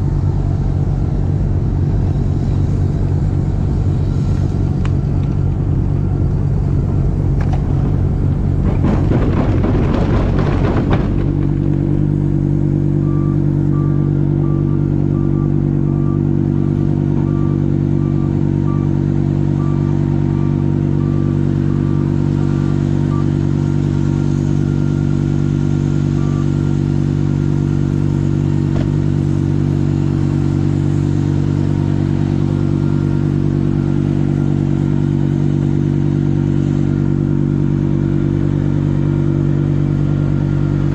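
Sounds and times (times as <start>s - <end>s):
diesel tractor engine: 0.0s - 40.9s
thrown snow rushing: 7.6s - 12.2s
faint beep: 12.9s - 23.4s, 26.2s - 26.6s.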